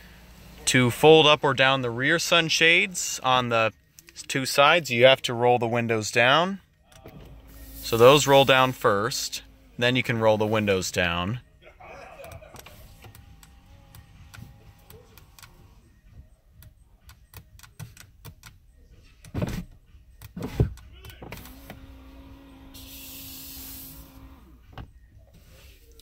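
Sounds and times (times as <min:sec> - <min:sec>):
electric motor hum: 0:07.2 - 0:11.2, 0:12.6 - 0:15.8, 0:21.4 - 0:24.6.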